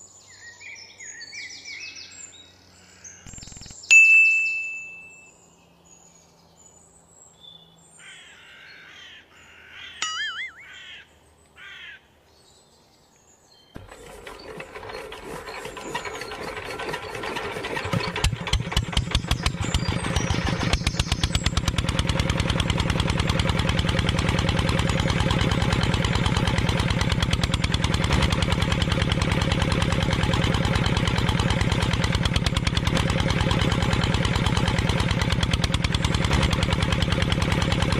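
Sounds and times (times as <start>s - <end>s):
birds chirping: 0.0s - 31.7s
diesel engine running: 13.8s - 37.9s.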